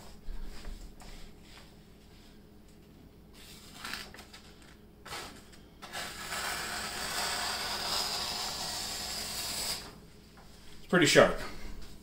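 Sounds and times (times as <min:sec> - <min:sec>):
knife slicing paper: 0:03.4 - 0:09.9.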